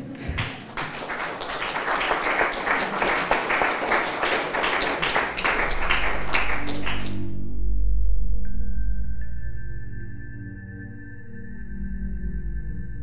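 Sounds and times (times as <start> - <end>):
audience applauding: 0.0 - 7.4
low steady music: 3.4 - 13.0.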